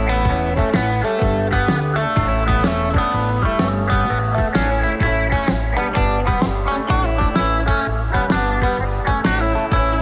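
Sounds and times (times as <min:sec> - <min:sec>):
instrumental music with steady beat: 0:00.0 - 0:10.0.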